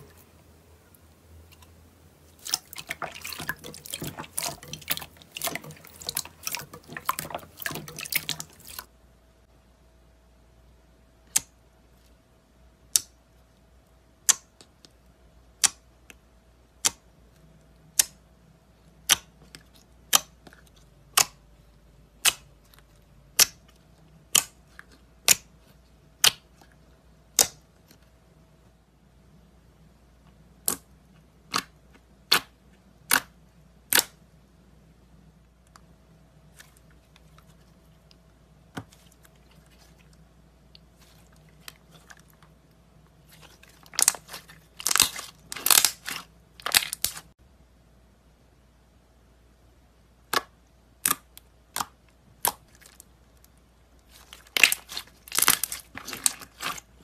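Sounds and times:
slime popping: 43.3s - 47.3s, 54.1s - 56.9s.

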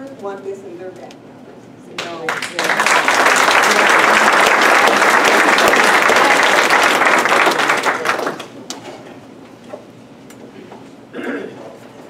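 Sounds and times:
audience applauding: 2.2s - 8.6s.

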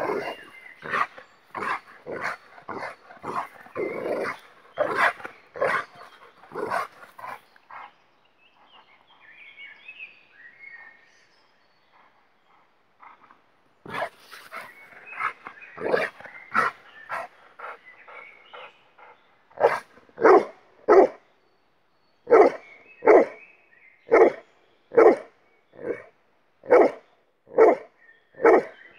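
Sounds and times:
dog barking and yipping: 0.0s - 7.4s, 19.6s - 21.1s.

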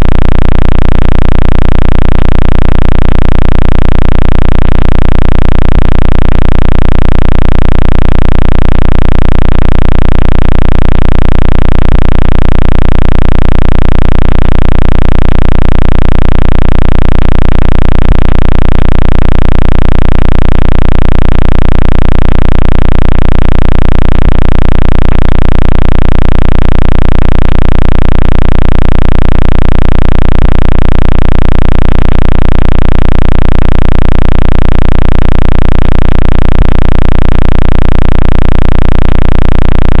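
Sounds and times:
pulsing deep electronic hum: 0.0s - 34.4s, 35.2s - 40.0s.

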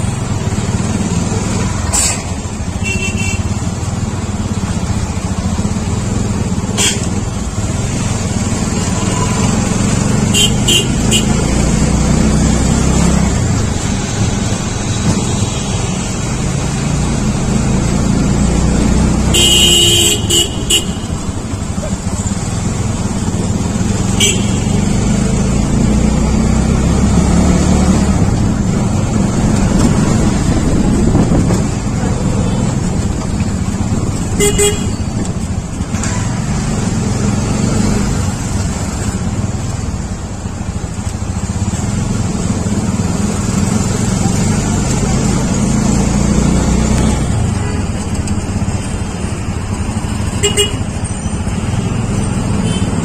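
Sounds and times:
vehicle engine and road rumble: 0.0s - 53.0s
vehicle horn toots: 2.8s - 3.5s, 6.8s - 7.2s, 10.3s - 11.5s, 19.3s - 21.2s, 24.1s - 24.8s, 34.4s - 35.0s, 50.4s - 50.8s.

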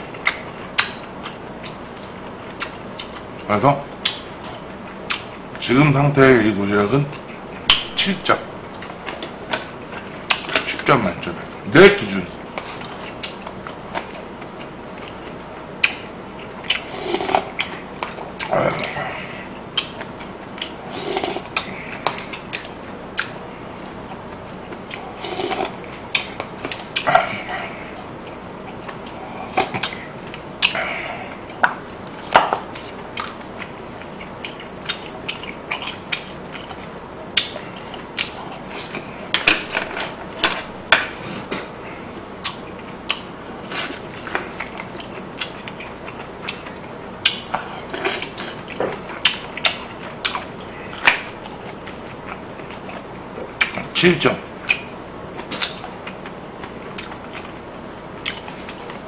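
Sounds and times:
mouth and chewing clicks: 12.3s - 19.0s, 19.8s - 39.1s, 54.6s - 57.6s, 58.2s - 59.0s.

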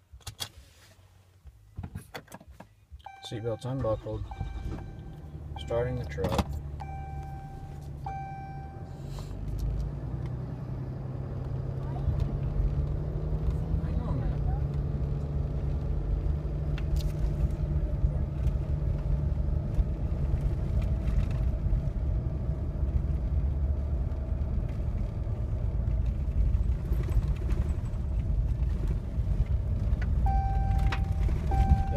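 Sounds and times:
seatbelt warning chime: 3.0s - 9.1s, 30.3s - 31.9s.

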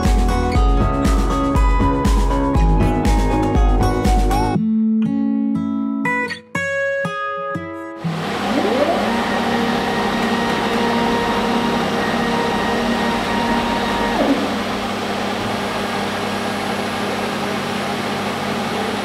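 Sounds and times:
motor whine: 8.0s - 19.0s
water jet cutting machine running: 8.0s - 19.0s.

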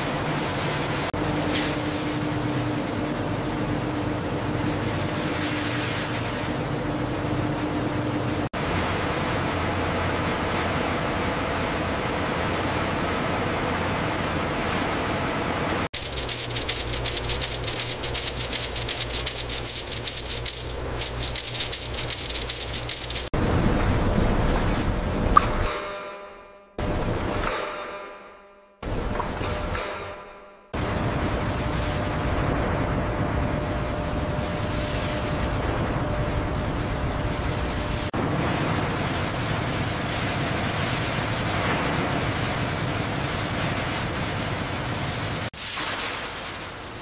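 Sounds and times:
steady machine hum: 0.0s - 24.0s
fast even rattling: 16.0s - 23.4s
machinery rushing noise: 16.0s - 23.4s.

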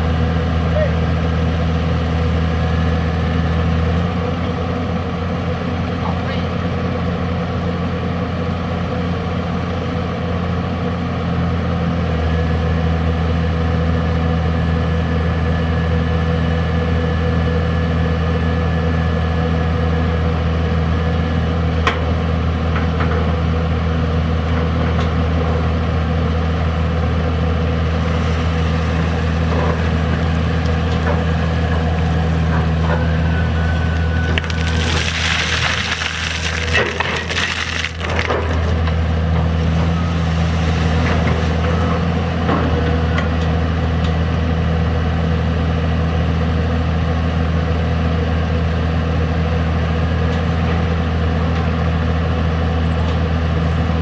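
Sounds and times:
excavator diesel engine: 0.0s - 54.0s
water and wet sand pouring: 34.2s - 38.6s, 39.6s - 41.6s.

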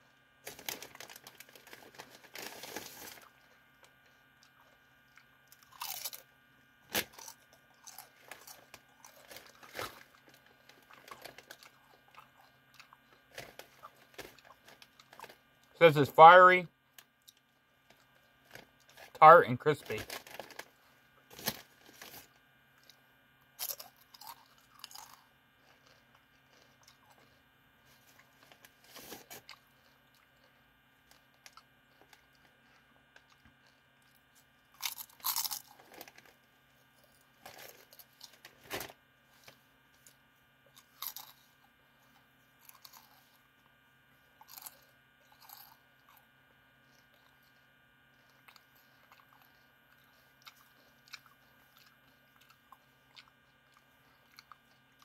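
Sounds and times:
potato chips crunching: 4.4s - 6.3s, 6.9s - 15.4s, 23.6s - 27.4s, 28.2s - 36.4s, 39.4s - 41.6s, 42.6s - 43.4s, 44.4s - 46.2s, 48.2s - 55.0s.

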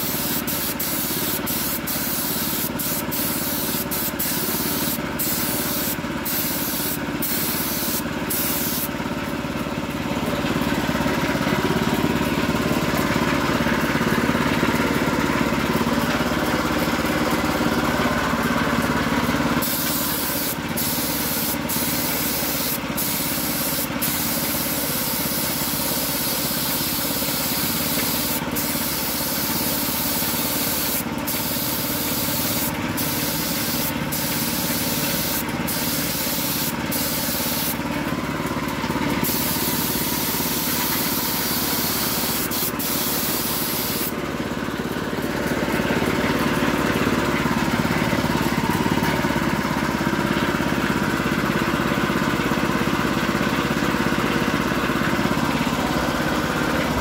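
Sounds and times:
spray gun hissing: 0.0s - 8.9s, 19.6s - 37.8s, 39.2s - 44.2s.

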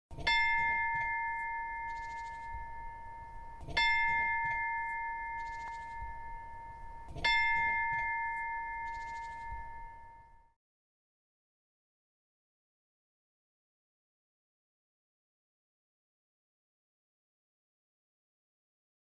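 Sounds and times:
meditation bell ringing: 0.2s - 10.6s.

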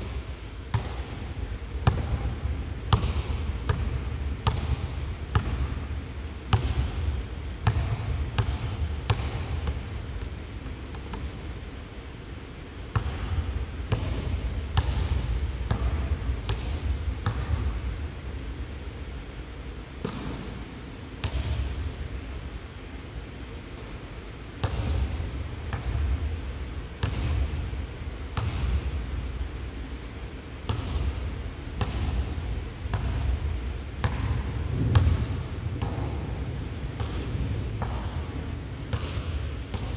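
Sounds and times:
low rumble of hall: 0.0s - 39.9s
basketball bouncing on hardwood: 0.7s - 1.0s, 34.0s - 36.2s, 38.9s - 39.9s.

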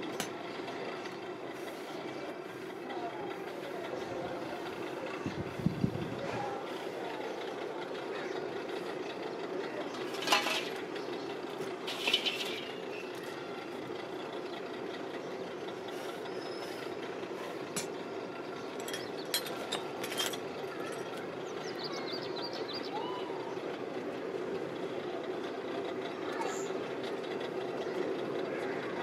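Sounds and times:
furnace blower and flame drone: 0.0s - 29.0s
metal clinks of tools: 18.8s - 21.2s.

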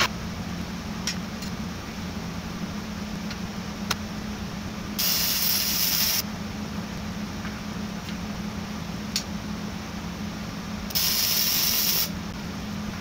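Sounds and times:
steady low hum: 0.0s - 13.0s
welder hiss: 5.0s - 6.2s, 10.9s - 12.2s.

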